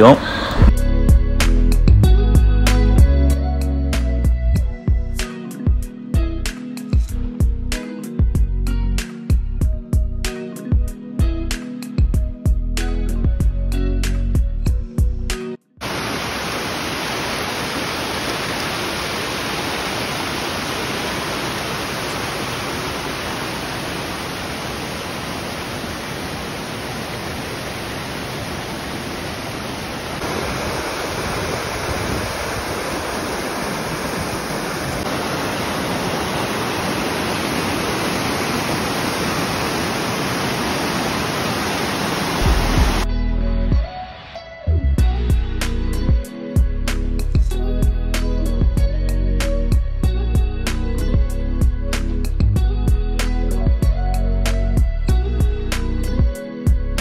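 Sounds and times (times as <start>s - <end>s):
waterfall rushing over rock: 15.8s - 43.1s.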